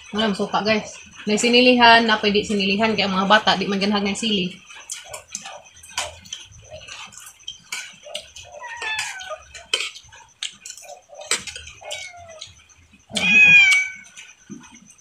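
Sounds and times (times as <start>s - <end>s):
clicks and smacks of eating: 4.5s - 15.0s.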